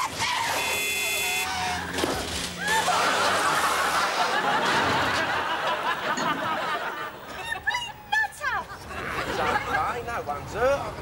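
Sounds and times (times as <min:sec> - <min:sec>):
studio audience laughing: 0:02.6 - 0:07.4.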